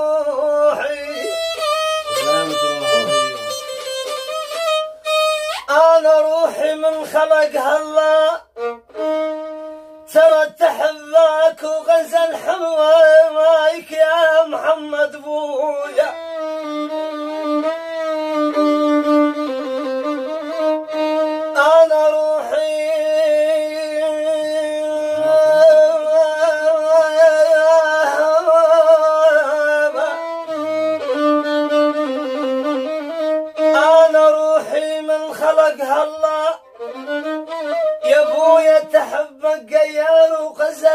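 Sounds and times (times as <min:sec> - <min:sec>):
solo violin melody: 0:00.0 - 0:10.6, 0:15.5 - 0:39.2.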